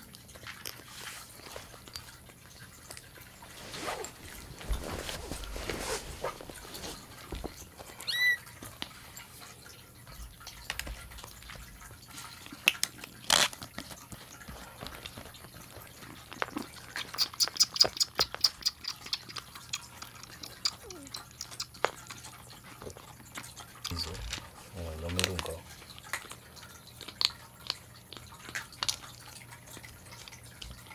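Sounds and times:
kitten suckling wet clicks: 10.3 - 30.9.

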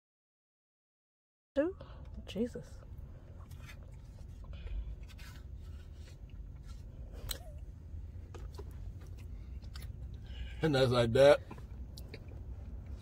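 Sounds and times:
low steady rumble: 1.6 - 13.0.

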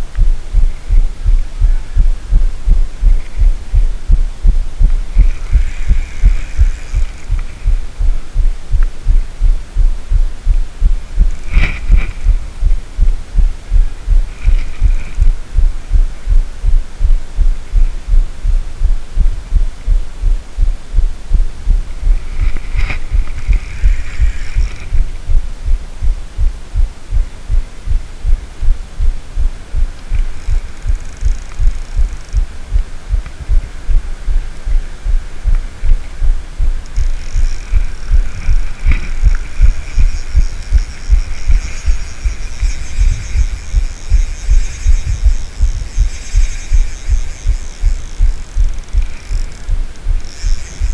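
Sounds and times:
faint high whine: 0.0 - 50.9
fishing reel cranking thuds: 4.5 - 8.1, 22.0 - 25.4, 30.0 - 32.5, 35.4 - 50.9.

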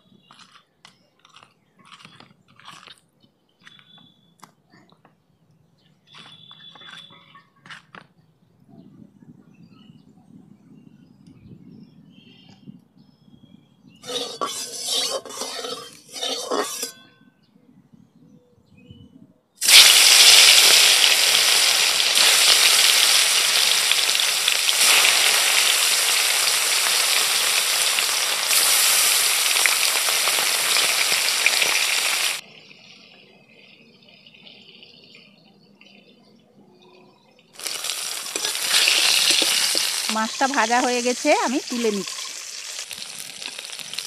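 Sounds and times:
fish sizzling in hot oil: 14.0 - 16.9, 19.6 - 32.4, 37.6 - 44.0
oil spattering: 37.6 - 40.7.

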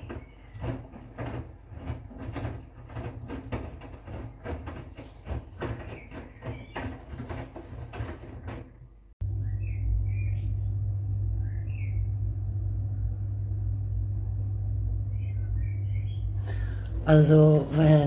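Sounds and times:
water sloshing in washing machine: 0.0 - 10.2
washing machine motor hum: 0.0 - 18.0.

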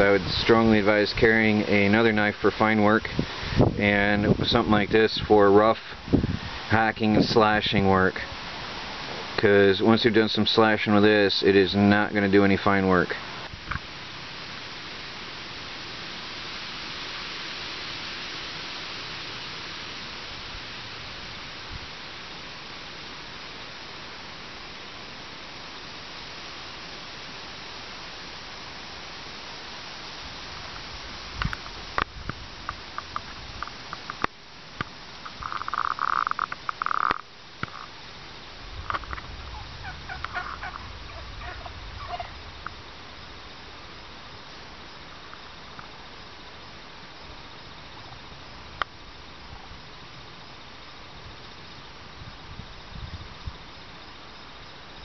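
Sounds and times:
steady hiss: 0.0 - 55.0
wild turkeys calling: 35.2 - 37.9, 38.8 - 42.8.

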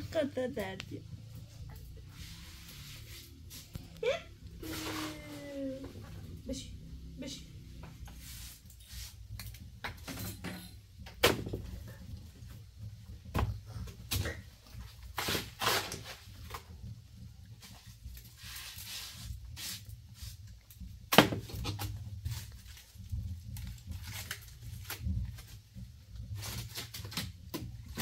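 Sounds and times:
objects knocking and clattering: 9.4 - 15.1.

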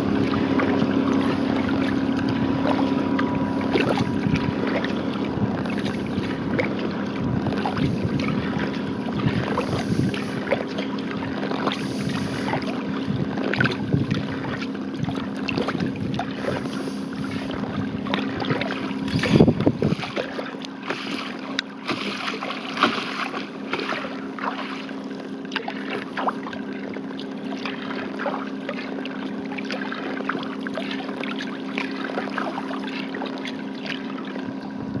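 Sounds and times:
wind buffeting microphone: 0.0 - 20.3, 34.5 - 35.0
paddle dipping and dripping: 0.0 - 35.0
steady low hum: 0.0 - 35.0
water splashing along hull: 0.0 - 35.0.

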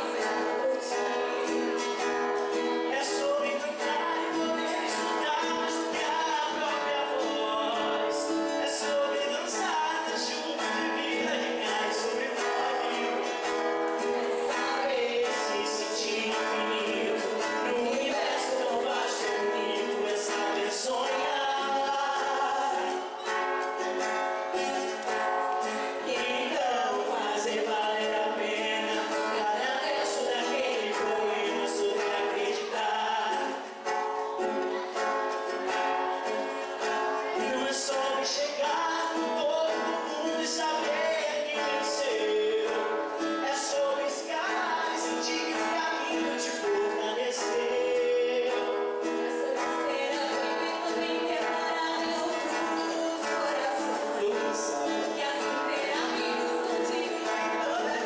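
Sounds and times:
woman singing: 0.0 - 1.8, 2.7 - 23.3, 37.0 - 58.0
acoustic guitar: 0.0 - 58.0
man singing: 0.0 - 58.0.

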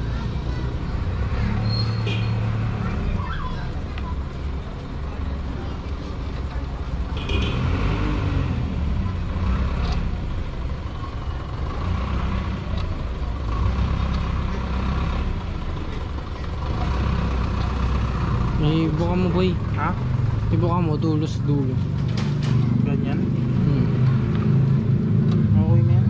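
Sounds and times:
engine running low rumble: 0.0 - 26.0.

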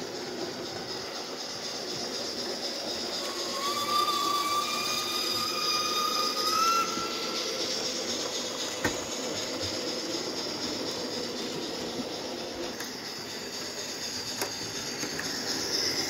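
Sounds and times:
model train running on track: 0.0 - 16.0
high squealing tone: 3.1 - 8.2.

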